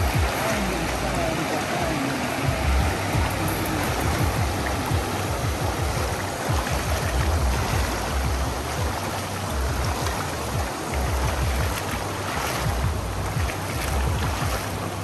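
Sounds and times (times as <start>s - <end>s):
floodwater rushing: 0.0s - 15.0s
wind buffeting microphone: 0.0s - 15.0s.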